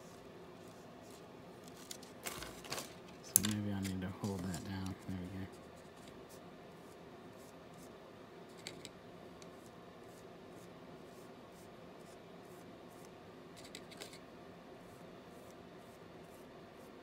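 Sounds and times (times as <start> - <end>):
paintbrush scratching and dabbing: 0.0 - 1.7, 4.3 - 8.7, 9.4 - 14.2, 14.8 - 17.0
low room hum: 0.0 - 17.0.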